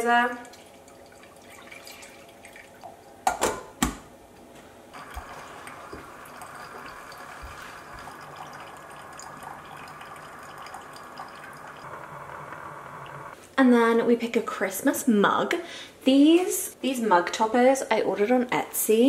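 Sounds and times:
milk frother whirring: 0:05.0 - 0:13.4.

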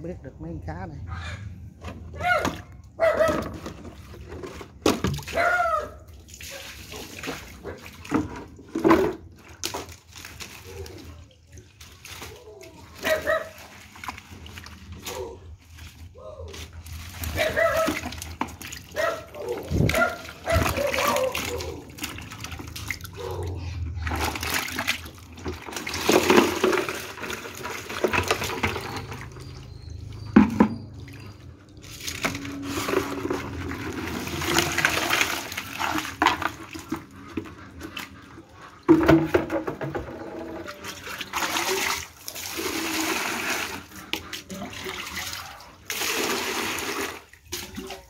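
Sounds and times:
water sloshing and splashing: 0:00.3 - 0:48.0
water pouring off: 0:09.2 - 0:37.3, 0:38.9 - 0:48.0.

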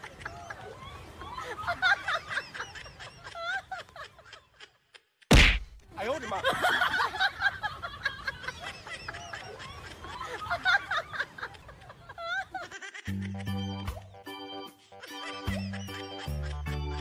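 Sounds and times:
loud whack sound effect: 0:05.3 - 0:05.8.

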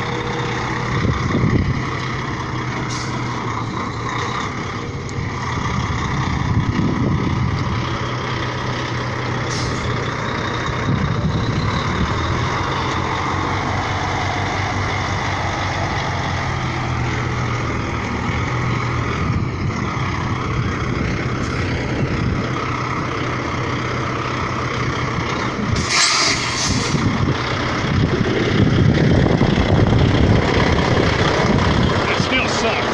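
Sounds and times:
diesel truck engine running: 0:00.0 - 0:32.9
air brake hiss: 0:25.8 - 0:27.0.

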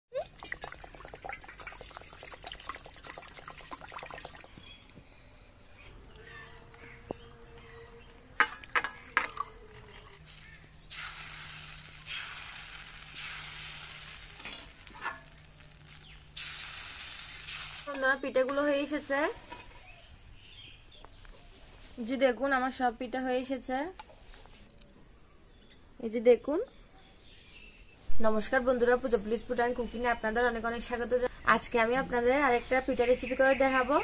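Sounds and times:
batter sizzling: 0:00.1 - 0:04.8, 0:08.4 - 0:19.8
water splashing into flour: 0:00.2 - 0:04.6.

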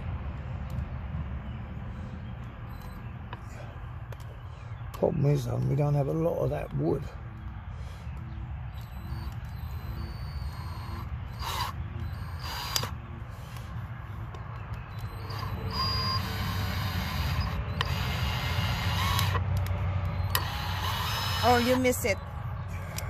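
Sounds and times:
sharp clicks: 0:02.3 - 0:03.4, 0:06.6 - 0:23.0
cordless drill driving a screw: 0:08.1 - 0:13.6, 0:14.6 - 0:22.2.

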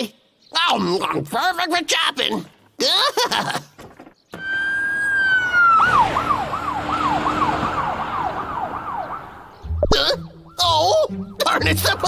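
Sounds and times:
police siren wail and yelp: 0:04.4 - 0:09.6, 0:10.2 - 0:12.0.

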